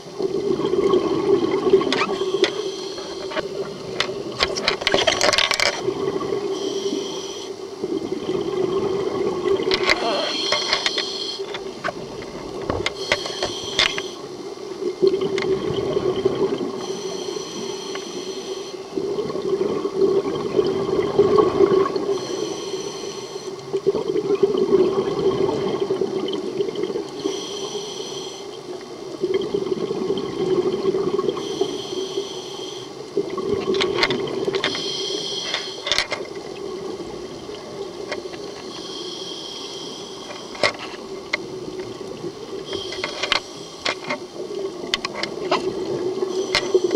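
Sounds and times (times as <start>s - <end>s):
exhaled bubbles: 0.0s - 5.0s, 5.8s - 6.6s, 7.8s - 13.9s, 14.8s - 16.9s, 18.8s - 22.5s, 23.6s - 27.2s, 28.8s - 31.8s, 33.0s - 34.8s
diver inhaling through regulator: 9.8s - 11.6s, 12.9s - 14.3s, 22.1s - 23.6s, 27.2s - 28.5s, 31.4s - 33.0s, 34.6s - 36.0s, 38.6s - 40.6s.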